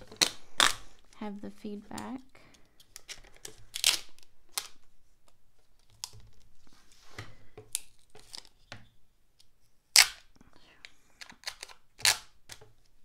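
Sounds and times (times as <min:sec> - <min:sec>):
packing tape ripping off roll: 0:00.0 - 0:01.1, 0:02.8 - 0:04.8, 0:11.3 - 0:12.6.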